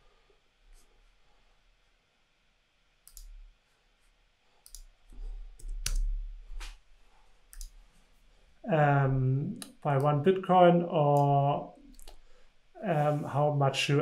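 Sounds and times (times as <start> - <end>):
computer clicks and taps: 3.0 - 3.4, 4.6 - 4.9, 5.6 - 6.8, 7.5 - 7.8.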